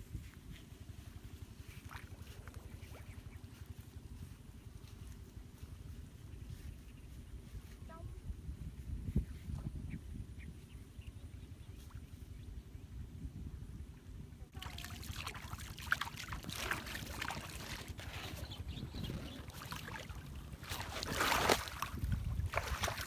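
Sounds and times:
wind buffeting microphone: 0:00.0 - 0:15.0, 0:16.0 - 0:23.0
water splashing and trickling: 0:14.5 - 0:23.0.

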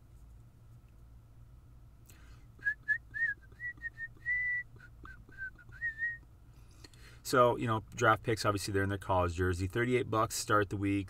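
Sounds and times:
faint steady hum: 0:00.0 - 0:11.0
person whistling a tune: 0:02.6 - 0:06.2.

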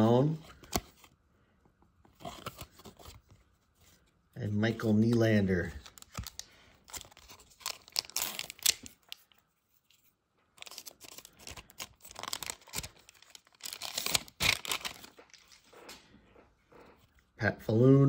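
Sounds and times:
foil wrapper crinkling: 0:04.9 - 0:09.4, 0:10.6 - 0:15.6
foil wrapper tearing open: 0:05.7 - 0:09.2, 0:10.6 - 0:15.2.

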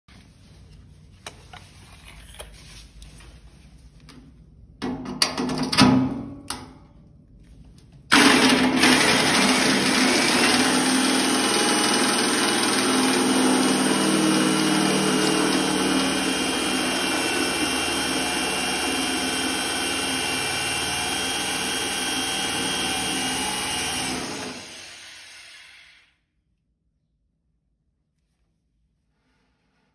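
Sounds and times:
power drill grinding metal: 0:08.1 - 0:26.1.

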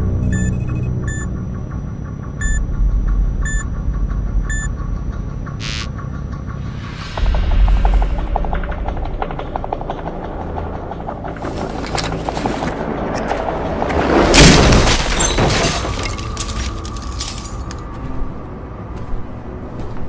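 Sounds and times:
held tone: 0:00.2 - 0:01.3
swelling orchestral film music: 0:01.1 - 0:14.6.

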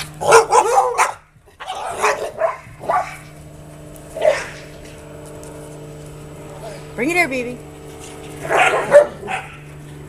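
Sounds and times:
dogs barking: 0:00.2 - 0:03.3, 0:04.1 - 0:04.8, 0:08.3 - 0:09.7.

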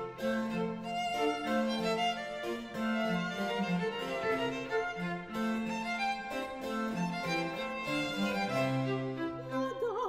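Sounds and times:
baroque violins: 0:00.0 - 0:10.0
cello and harpsichord: 0:00.0 - 0:10.0.

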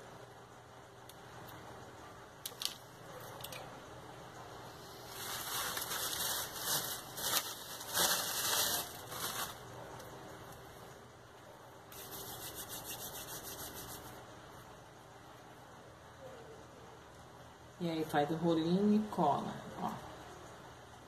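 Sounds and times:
scratchy rustling and rubbing: 0:05.0 - 0:09.6, 0:11.9 - 0:14.2.

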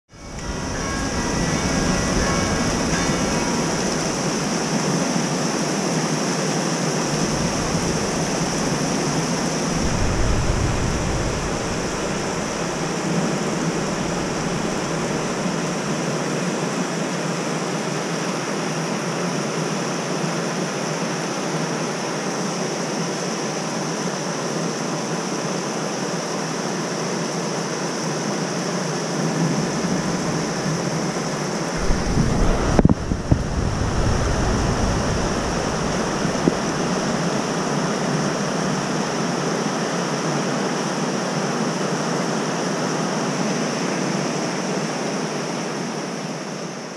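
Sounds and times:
wind buffeting microphone: 0:00.1 - 0:05.6, 0:06.9 - 0:15.9, 0:29.3 - 0:39.1
heavy rain hissing: 0:00.1 - 0:16.1, 0:29.1 - 0:39.8
river and waterfall rushing: 0:00.2 - 0:16.0, 0:29.7 - 0:39.3.

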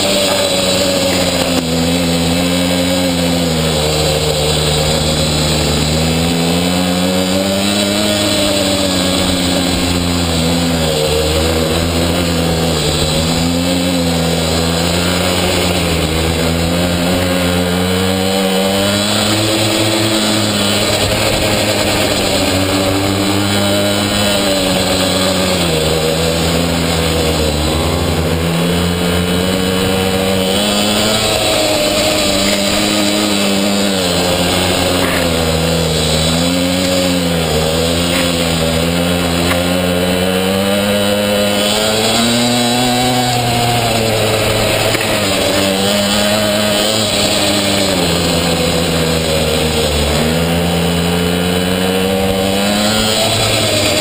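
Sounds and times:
small two-stroke engine buzzing: 0:00.0 - 0:54.0.

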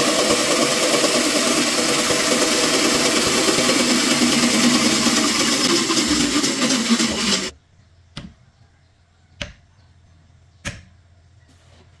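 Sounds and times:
band saw running: 0:00.0 - 0:07.5.

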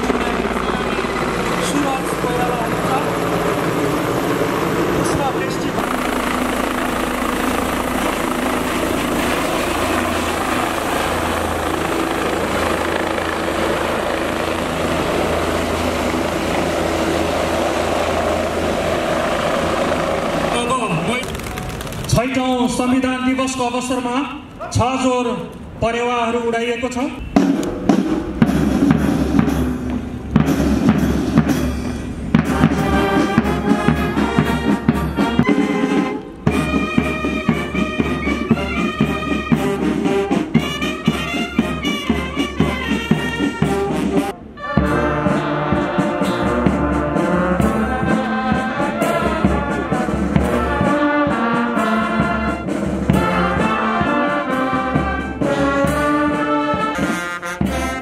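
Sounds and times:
brass band playing march: 0:00.0 - 0:24.1, 0:27.2 - 0:58.0
steady drum beat: 0:27.2 - 0:58.0
trumpets: 0:32.3 - 0:58.0.

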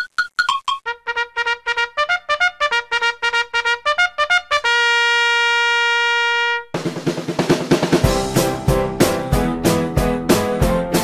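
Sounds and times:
trumpet-like fanfare: 0:00.8 - 0:06.8.

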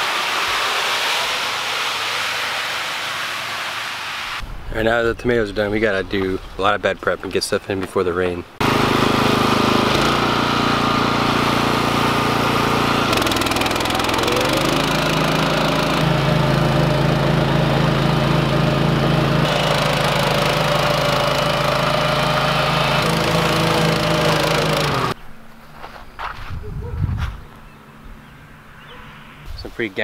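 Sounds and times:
small gasoline engine running: 0:08.6 - 0:25.2.

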